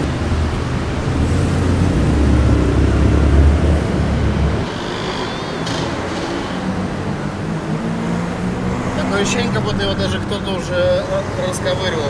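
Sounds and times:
heavy low traffic rumble: 0:00.0 - 0:12.0
steady traffic noise: 0:00.0 - 0:12.0
faint high squeal: 0:04.6 - 0:07.1.

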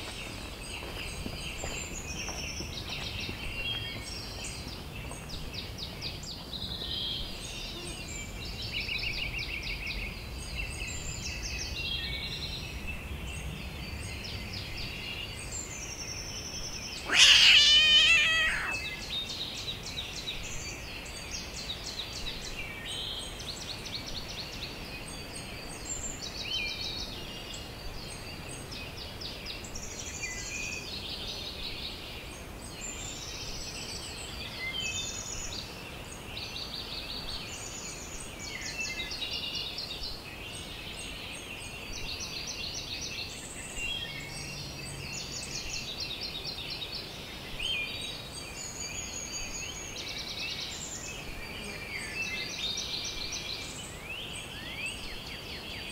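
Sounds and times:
songbirds chirping: 0:00.0 - 0:55.9
cat meowing: 0:17.1 - 0:18.9.

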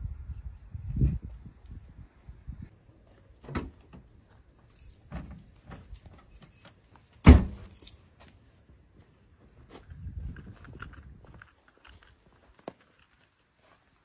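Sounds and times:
gear clinking and knocking: 0:03.3 - 0:08.0.

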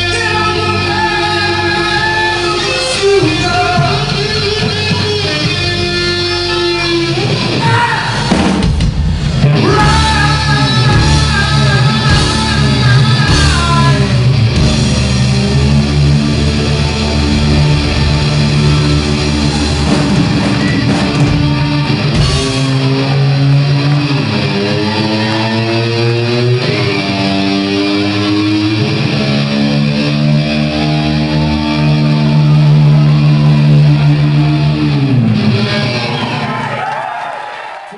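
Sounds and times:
distorted electric guitar: 0:00.0 - 0:36.8
bass guitar: 0:00.0 - 0:36.9
drum kit with cymbals: 0:07.2 - 0:23.0.

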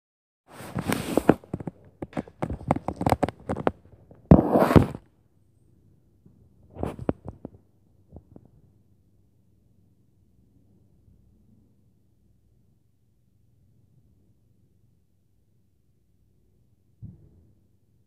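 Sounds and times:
rough scraping noise: 0:00.5 - 0:03.7, 0:04.3 - 0:05.0.

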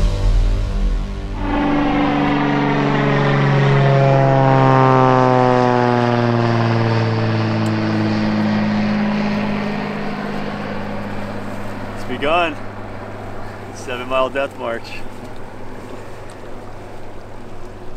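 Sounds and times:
floatplane propeller engine droning: 0:00.0 - 0:17.9.

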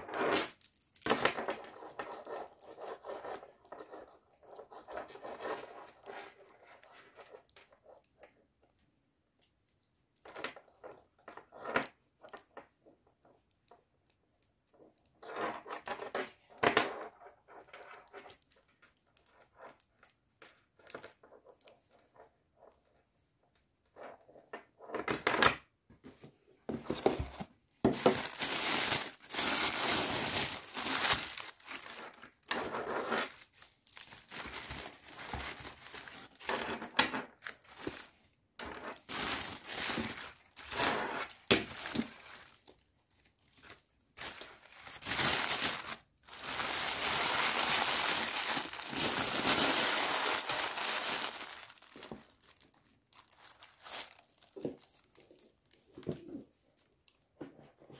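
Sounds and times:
tissue paper crinkling: 0:26.8 - 0:36.6, 0:37.3 - 0:38.2, 0:38.9 - 0:55.8.

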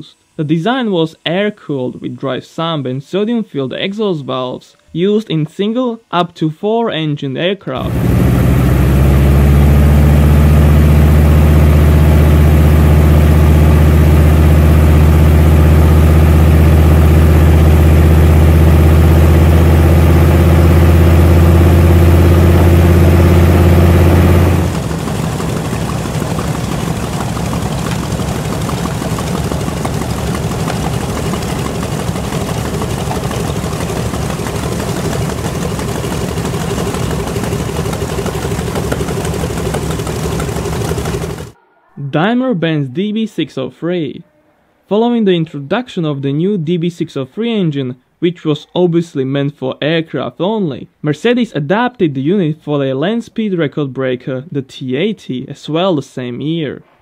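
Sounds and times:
rough aircraft engine taxiing: 0:07.8 - 0:41.6
radial aircraft engine running: 0:07.9 - 0:41.6.

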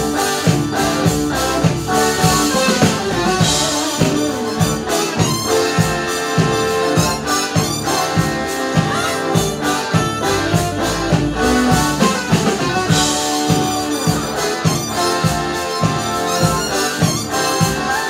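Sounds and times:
brass-like keyboards: 0:00.0 - 0:18.0
steady drum beat: 0:00.0 - 0:18.0.

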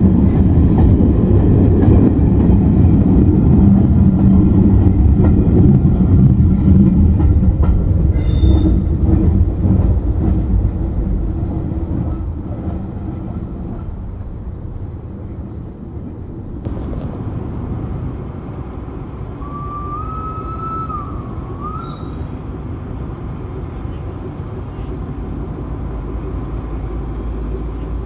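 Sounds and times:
wind buffeting the microphone: 0:00.0 - 0:26.5
distant railway: 0:00.0 - 0:28.0
faint wavering whistle: 0:19.4 - 0:22.4.

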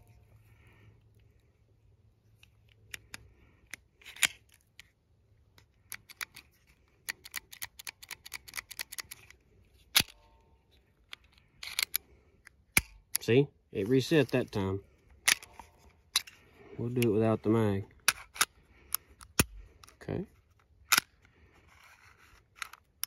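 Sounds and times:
pistol slide clicks: 0:12.7 - 0:13.2, 0:20.9 - 0:21.2.

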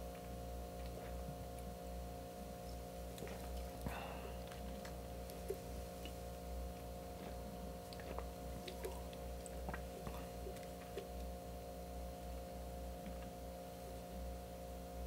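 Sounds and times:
steady low hum: 0:00.0 - 0:15.0
sipping and swallowing: 0:02.7 - 0:06.3, 0:07.0 - 0:11.3.

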